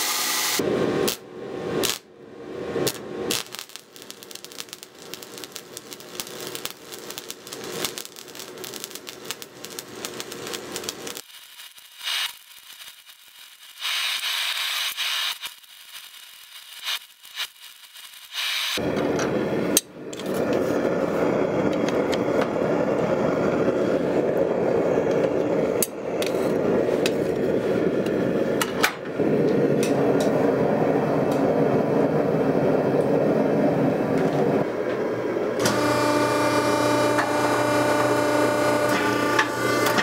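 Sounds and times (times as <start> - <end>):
gas forge burner rushing: 18.8 - 40.0
hydraulic press motor humming: 35.6 - 40.0.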